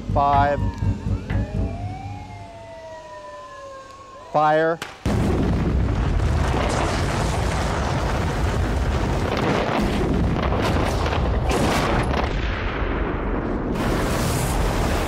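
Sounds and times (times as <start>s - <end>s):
sharp explosive cracks: 4.8s - 15.0s
rumble of explosive blasts: 5.0s - 15.0s.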